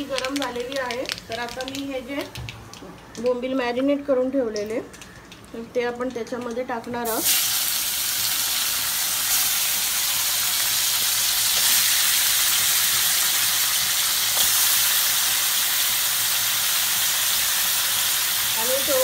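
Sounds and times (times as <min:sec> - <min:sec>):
fish sizzling in hot oil: 0:06.4 - 0:19.0.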